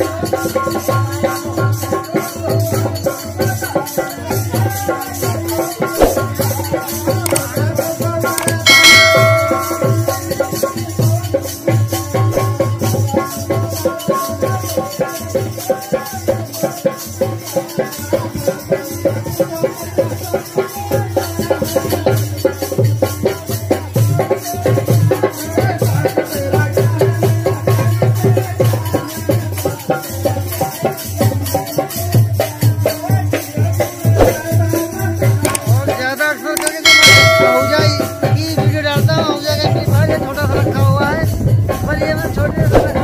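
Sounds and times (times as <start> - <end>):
rattling hand percussion: 0.0 - 43.0
hand drum: 8.6 - 11.1, 36.8 - 43.0.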